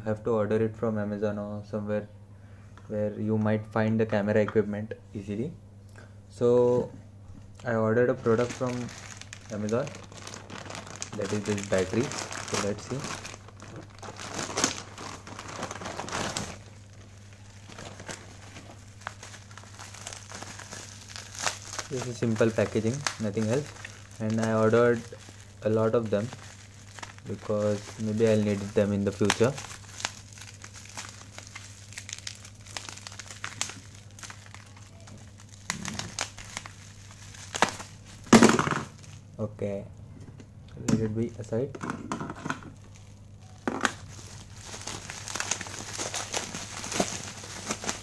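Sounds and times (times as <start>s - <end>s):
bubble wrap crackling: 7.6s - 39.3s, 42.7s - 48.0s
plastic bag crinkling: 7.6s - 39.3s, 42.6s - 48.0s.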